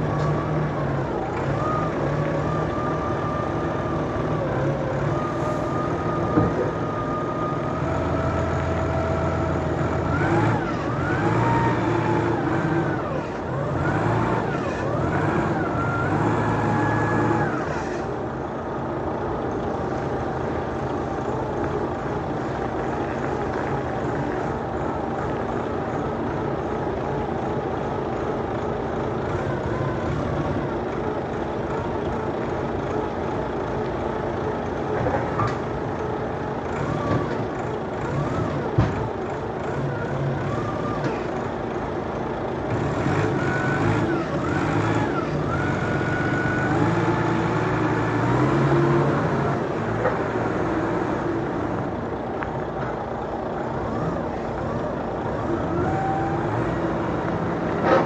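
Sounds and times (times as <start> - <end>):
heavy vehicle engines running: 0.0 - 58.0.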